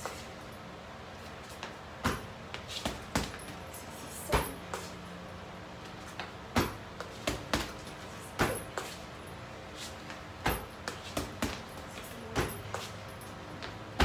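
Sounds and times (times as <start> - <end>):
punches thudding on heavy bag: 2.0 - 3.6, 4.3 - 4.6, 6.5 - 8.8, 10.4 - 12.7.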